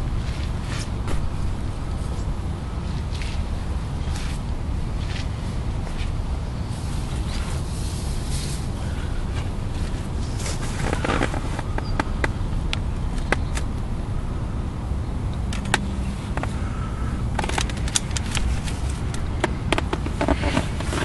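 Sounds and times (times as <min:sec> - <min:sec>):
low outdoor rumble: 0:00.0 - 0:21.0
camera handling clicks and rustles: 0:17.3 - 0:21.0.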